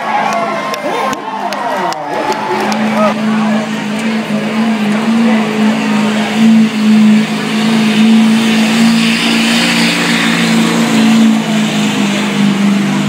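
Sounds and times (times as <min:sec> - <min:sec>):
diesel truck engine at full throttle: 0:00.0 - 0:13.0.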